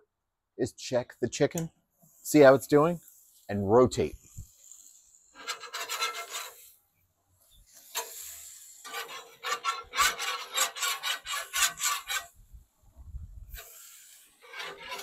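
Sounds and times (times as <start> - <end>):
chicken sizzling on grill grates: 4.3 - 6.8, 7.5 - 10.6, 13.5 - 15.0.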